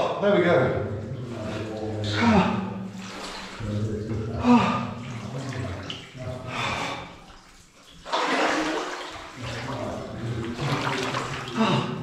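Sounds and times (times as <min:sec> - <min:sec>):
water sloshing around wading person: 0:00.8 - 0:12.0.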